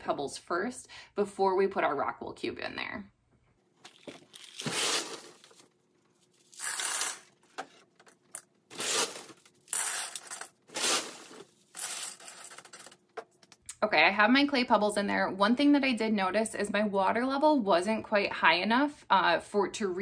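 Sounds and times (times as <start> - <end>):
clay pebbles rattling into a pot: 6.4 - 13.4.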